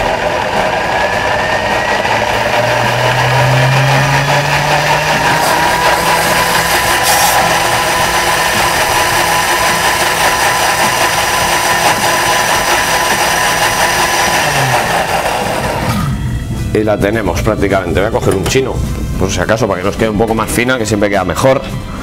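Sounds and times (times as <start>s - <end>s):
blender motor whine: 0.0s - 16.3s.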